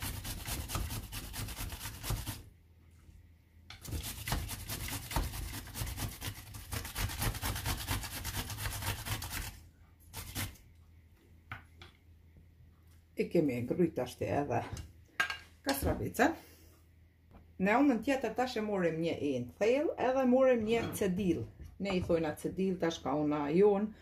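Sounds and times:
cucumber grated on metal grater: 0.0s - 2.4s, 3.8s - 9.6s, 10.2s - 10.5s.

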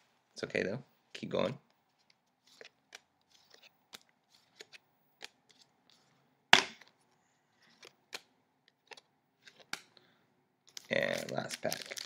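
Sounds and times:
trading cards flipped by hand: 1.9s - 7.0s, 7.6s - 9.9s.

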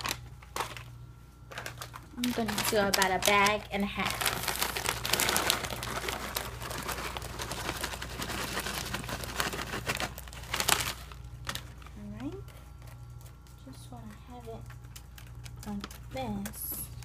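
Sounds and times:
plastic bag crinkling: 0.0s - 17.0s
croutons tumbling into soup: 1.5s - 11.8s.

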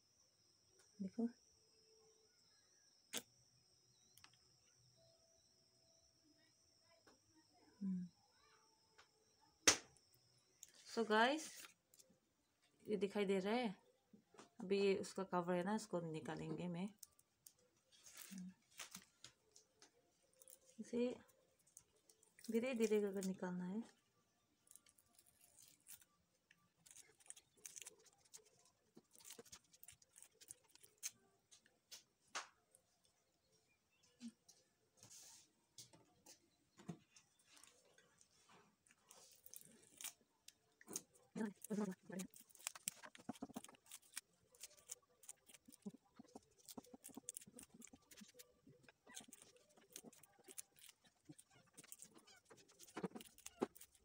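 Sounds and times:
papery comb crackling: 24.6s - 31.6s, 38.8s - 54.0s.

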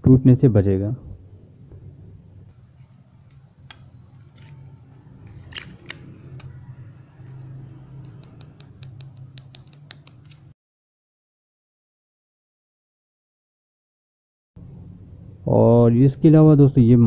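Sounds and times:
low steady hum: 0.0s - 9.4s, 14.6s - 17.0s
plastic phone case clicking: 3.2s - 4.6s, 5.2s - 6.6s, 7.2s - 7.4s, 8.0s - 10.5s.

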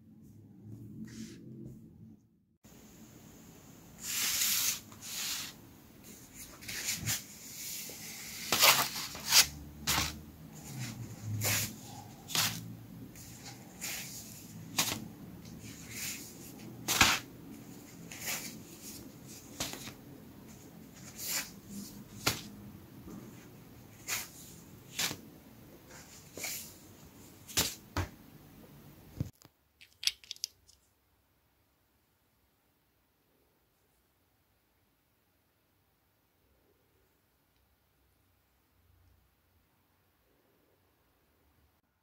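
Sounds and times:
paper pages rustling: 13.2s - 22.5s.

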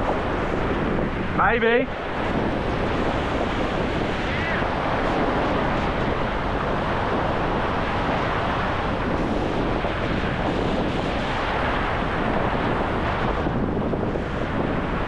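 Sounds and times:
ocean surf breaking: 0.0s - 15.0s
wind rumbling on microphone: 0.0s - 15.0s.

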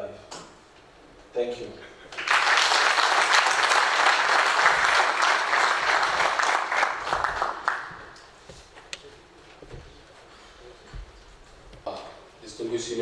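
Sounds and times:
audience clapping: 2.1s - 8.4s.

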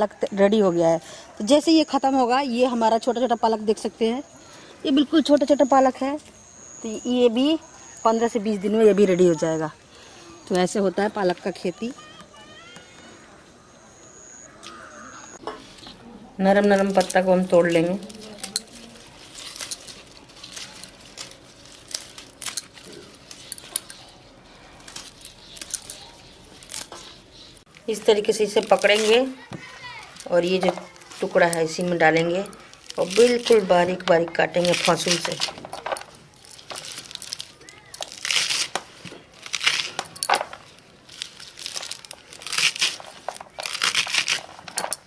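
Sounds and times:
leafy rustling: 14.8s - 45.0s
spinach stems snapping: 16.6s - 24.2s, 24.8s - 27.8s, 28.4s - 45.0s
spinach being sliced: 41.5s - 44.6s.

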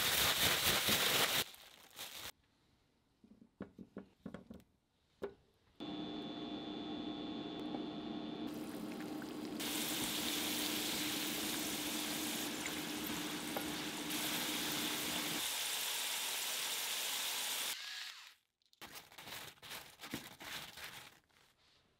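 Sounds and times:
oil sizzling in frying pan: 8.5s - 17.8s.

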